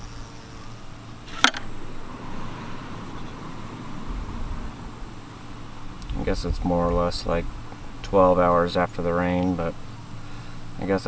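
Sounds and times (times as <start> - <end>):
sharp click: 1.3 - 1.7
wind buffeting microphone: 1.7 - 8.4.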